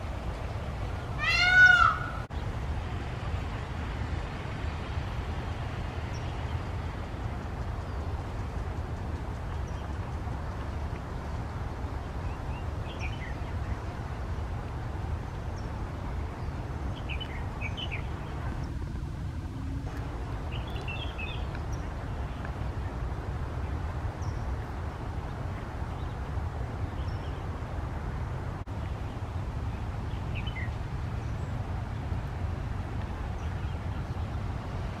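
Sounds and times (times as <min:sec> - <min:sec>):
low outdoor rumble: 0:00.0 - 0:35.0
small birds chirping: 0:15.4 - 0:23.0.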